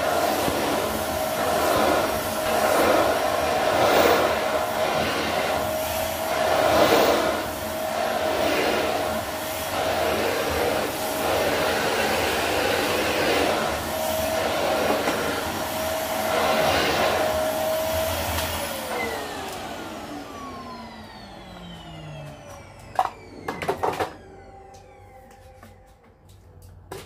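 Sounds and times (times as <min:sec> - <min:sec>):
vacuum motor winding down: 0:00.0 - 0:26.1
vacuum cleaner running: 0:00.0 - 0:27.0.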